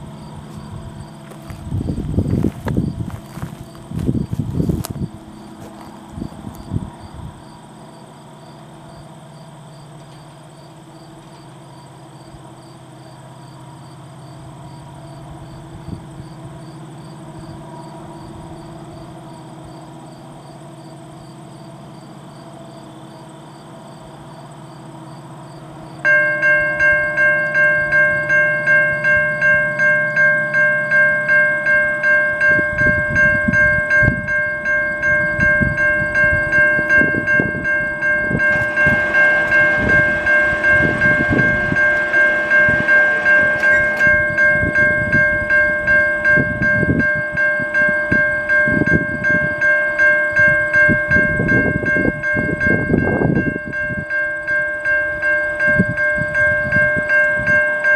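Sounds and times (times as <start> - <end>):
distant train hum: 0.0 - 57.9
train rumble: 0.0 - 57.9
level crossing warning bell: 22.9 - 57.9.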